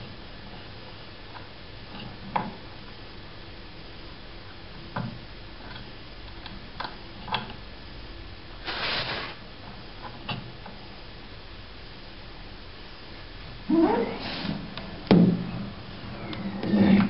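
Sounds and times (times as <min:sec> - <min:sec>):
gas hissing out: 0:08.6 - 0:09.5, 0:14.1 - 0:14.8.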